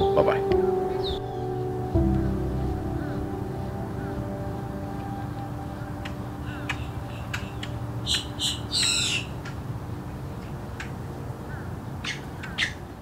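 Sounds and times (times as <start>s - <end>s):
harsh rasping bird calls: 5.6s - 9.6s, 10.8s - 12.9s.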